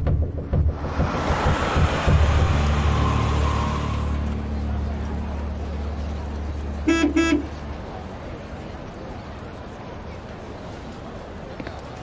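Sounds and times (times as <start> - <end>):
car engine humming: 0.0 - 8.5
car horn toots: 6.8 - 7.5.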